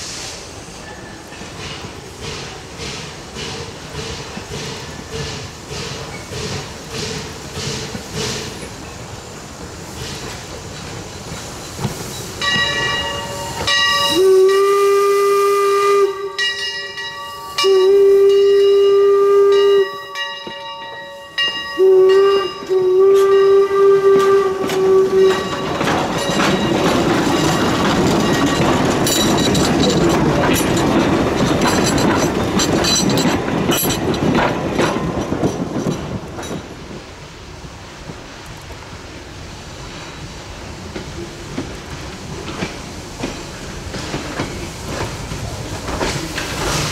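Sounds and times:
steam locomotive whistle blasts: 12.4 - 20.4, 21.2 - 25.8
wheels clicking over rail joints: 22.6 - 37.0.

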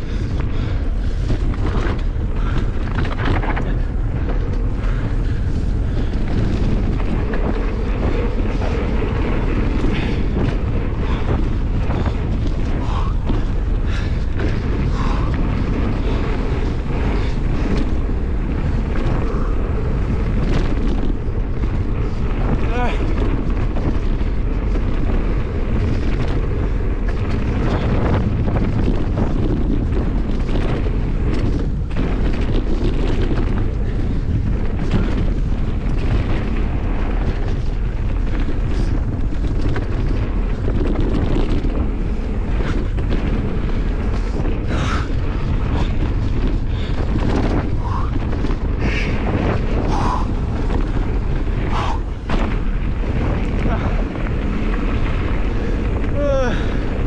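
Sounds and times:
bike knocks and clatter: 0.0 - 57.0
bike tyre rumble on gravel: 0.0 - 57.0
wind buffeting microphone: 0.0 - 57.0.

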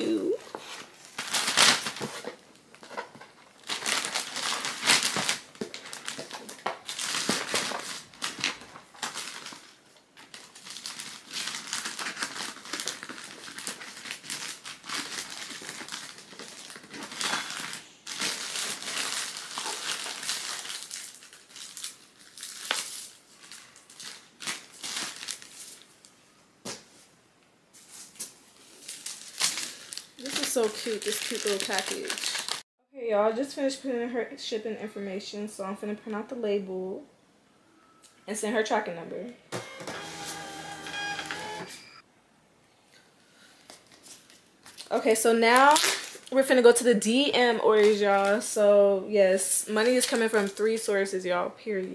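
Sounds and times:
wrapping paper crinkling: 0.4 - 26.1, 27.8 - 32.6, 43.6 - 46.5.

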